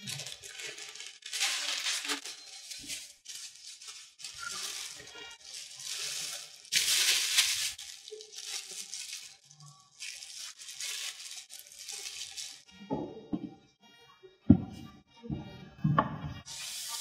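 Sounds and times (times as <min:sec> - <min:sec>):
plastic bags crinkling: 0:00.0 - 0:12.7.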